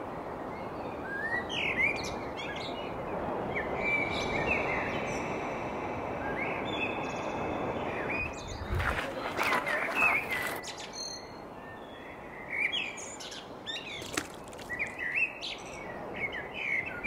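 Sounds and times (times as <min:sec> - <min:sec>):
birds chirping: 0:06.4 - 0:11.2, 0:12.2 - 0:16.5.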